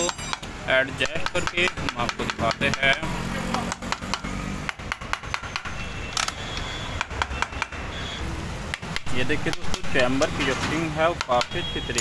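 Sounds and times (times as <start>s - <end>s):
mallet tapping on metal casing: 0.0s - 5.4s.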